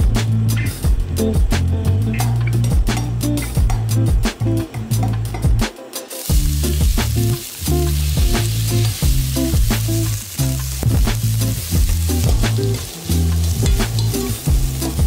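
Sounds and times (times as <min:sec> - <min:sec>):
background music with steady beat: 0:00.0 - 0:15.0
onions sizzling in oil: 0:06.0 - 0:15.0.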